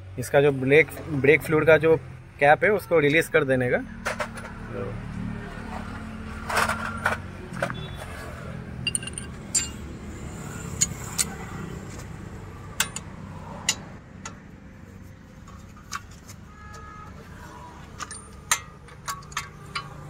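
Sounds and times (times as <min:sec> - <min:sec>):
sharp metal clinks: 0:08.8 - 0:09.9.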